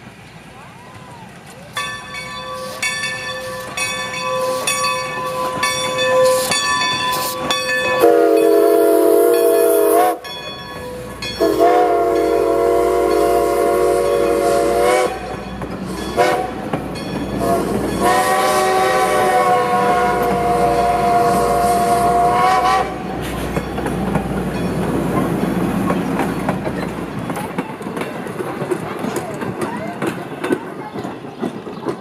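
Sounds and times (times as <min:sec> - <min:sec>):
train low rumble: 0:00.0 - 0:32.0
locomotive chime horn blasts: 0:01.9 - 0:15.4, 0:16.1 - 0:16.7, 0:17.4 - 0:23.2.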